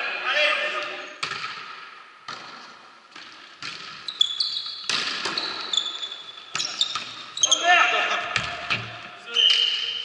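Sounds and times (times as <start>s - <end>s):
volleyball hits echoing: 0.8s - 4.1s, 4.8s - 5.7s, 8.0s - 9.2s
shoes squeaking on floor: 4.0s - 7.7s, 9.2s - 10.0s.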